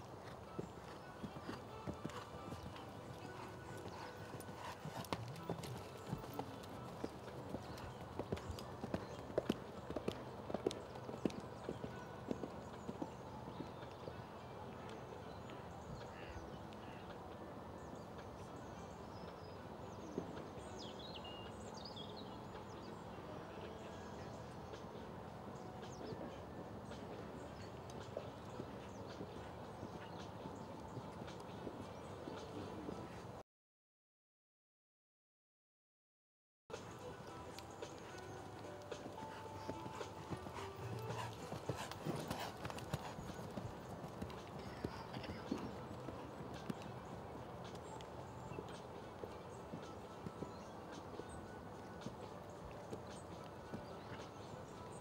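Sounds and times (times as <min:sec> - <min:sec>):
steady outdoor hiss: 0:00.0 - 0:33.4, 0:36.7 - 0:55.0
hoofbeats on sand: 0:00.2 - 0:13.9, 0:36.7 - 0:46.9.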